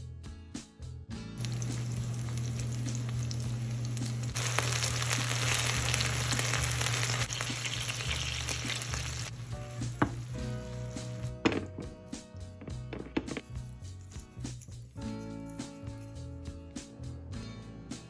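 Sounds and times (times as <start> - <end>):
fish sizzling in a frying pan: 1.4 - 11.3
chopsticks knocking on a pan: 9.9 - 10.4.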